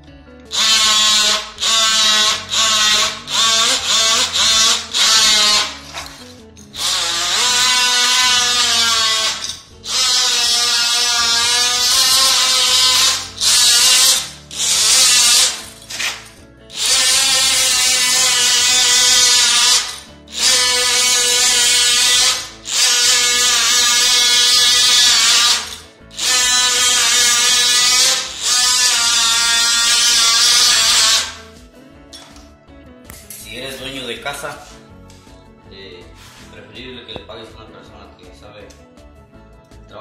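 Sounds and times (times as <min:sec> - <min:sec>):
oscillating multi-tool cutting wood: 0:00.5 - 0:06.2, 0:06.8 - 0:31.4.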